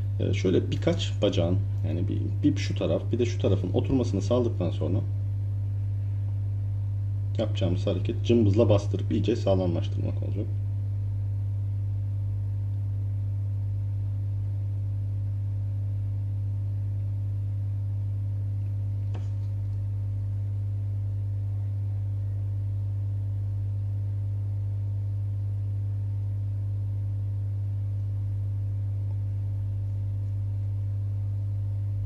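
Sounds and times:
hot air blower hum: 0:00.0 - 0:11.9.

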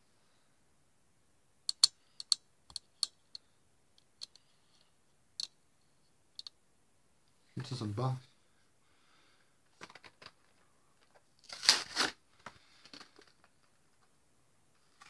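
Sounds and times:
small plastic parts clicking: 0:01.7 - 0:03.4, 0:04.0 - 0:05.6.

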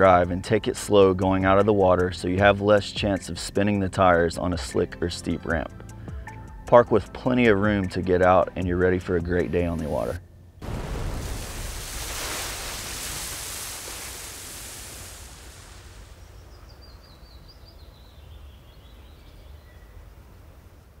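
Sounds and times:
rushing splashing water: 0:10.6 - 0:16.6.

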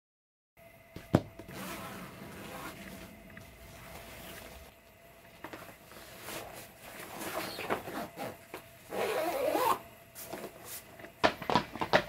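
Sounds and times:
fabric scrapes and rubs: 0:01.5 - 0:04.7, 0:05.8 - 0:10.9.

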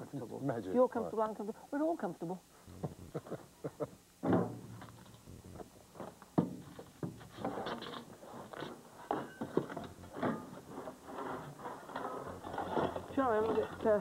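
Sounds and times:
garden tool scraping soil: 0:10.4 - 0:14.0.

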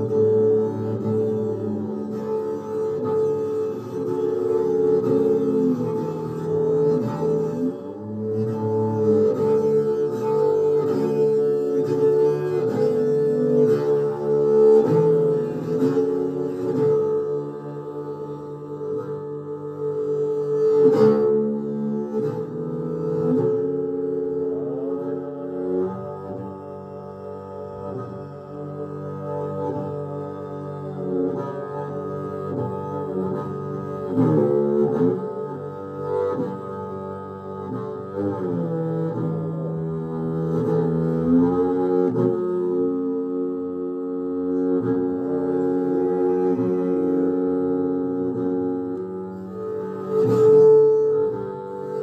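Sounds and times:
bowed double bass low notes: 0:00.0 - 0:52.0
plucked string notes: 0:00.0 - 0:52.0.

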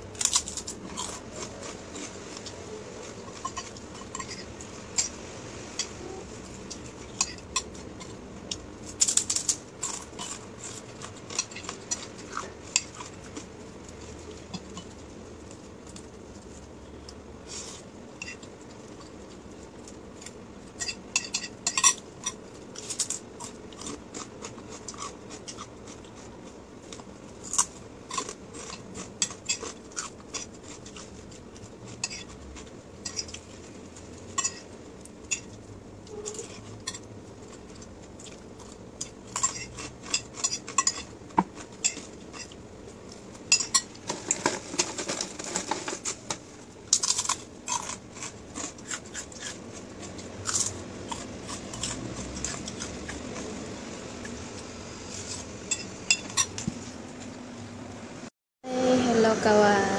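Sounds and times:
fork clinking against a plate: 0:20.8 - 0:22.4, 0:32.0 - 0:32.4, 0:33.0 - 0:33.4, 0:34.3 - 0:35.6, 0:39.3 - 0:42.6, 0:43.5 - 0:43.9.

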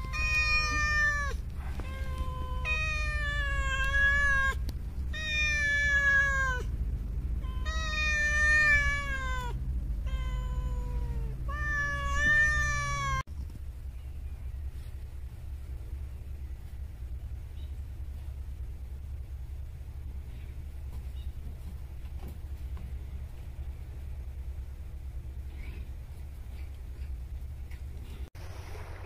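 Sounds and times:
cat meowing: 0:00.0 - 0:06.7, 0:07.4 - 0:13.2
steady low rumble: 0:00.0 - 0:29.0.

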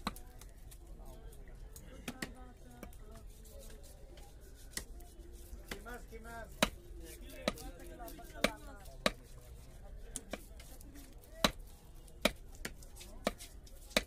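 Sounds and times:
cleaver chopping on wooden block: 0:06.5 - 0:06.8, 0:07.4 - 0:07.6, 0:08.4 - 0:09.2, 0:10.2 - 0:10.5, 0:11.4 - 0:14.0.

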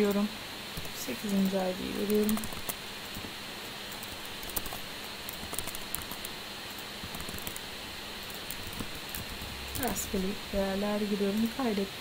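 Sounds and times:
typing on keyboard: 0:00.8 - 0:03.2, 0:03.9 - 0:06.3, 0:07.0 - 0:07.6.

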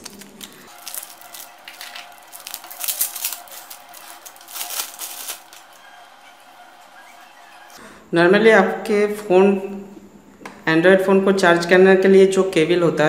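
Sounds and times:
plastic wrapping crinkling: 0:00.0 - 0:07.8.

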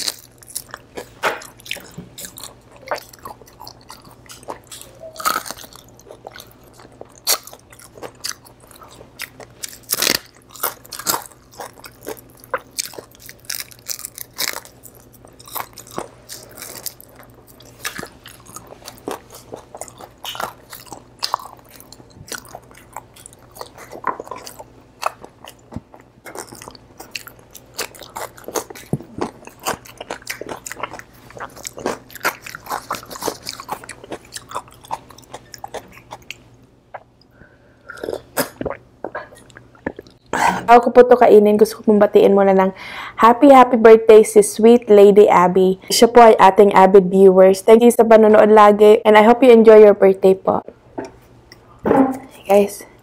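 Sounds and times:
crunching crispy food: 0:00.0 - 0:36.4
chewing: 0:00.0 - 0:40.3.

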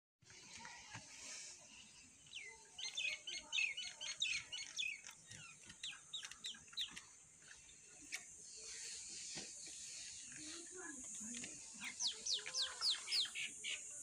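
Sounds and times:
birds chirping: 0:00.3 - 0:14.0.

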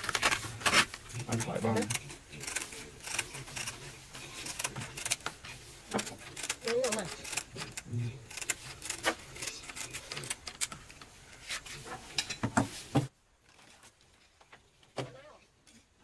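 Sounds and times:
scissors cutting sandpaper: 0:00.0 - 0:10.7.

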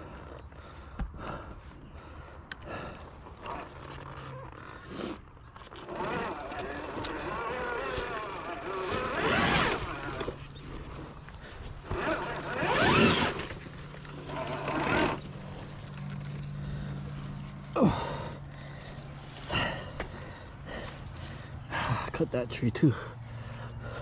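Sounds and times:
motorbike engine running: 0:05.8 - 0:20.9.

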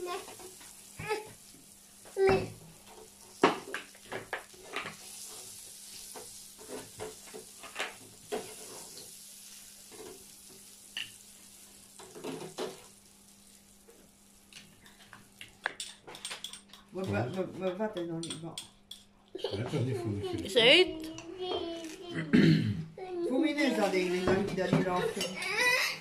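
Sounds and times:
butter sizzling on griddle: 0:00.0 - 0:17.4, 0:23.5 - 0:25.9
cutlery clicking and scraping on metal: 0:15.7 - 0:19.1.

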